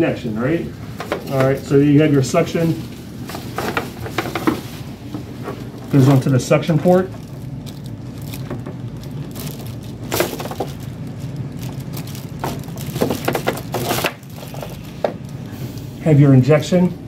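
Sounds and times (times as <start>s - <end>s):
steady low hum: 0.0s - 17.0s
plastic tubing crackles and clicks: 7.1s - 15.4s.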